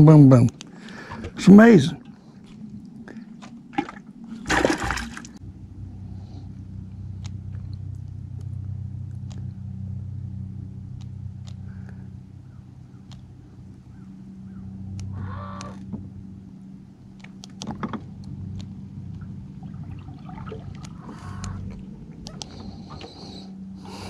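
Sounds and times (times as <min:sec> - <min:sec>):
low motor hum: 0:00.0 - 0:24.0
water rushing: 0:02.9 - 0:05.4, 0:19.5 - 0:23.1
faint clicks: 0:10.9 - 0:14.2, 0:14.9 - 0:16.0, 0:17.1 - 0:19.3, 0:20.7 - 0:23.5.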